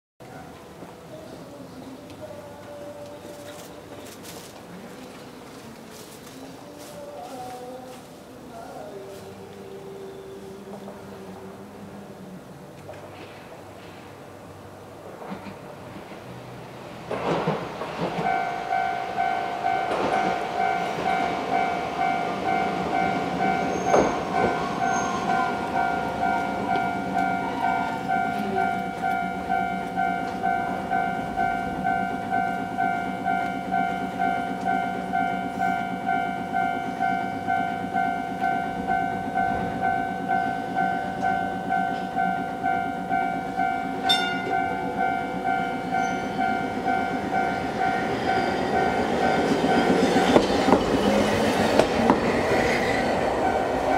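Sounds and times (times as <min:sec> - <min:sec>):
tram running: 0:00.2 - 0:53.9
level crossing warning bell: 0:18.1 - 0:53.9.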